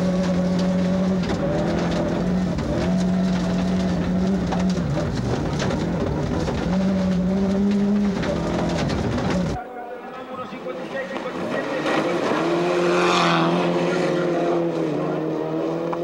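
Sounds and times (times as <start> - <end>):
rally car engine revving: 0.0 - 9.6, 10.8 - 16.0
short crackles: 0.0 - 9.6
road and mechanical noise: 0.0 - 16.0.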